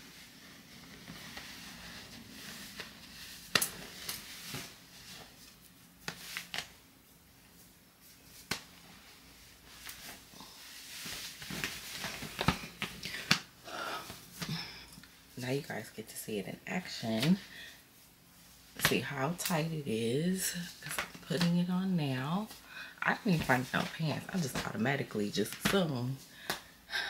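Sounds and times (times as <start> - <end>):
clothing rustling: 0.0 - 15.6.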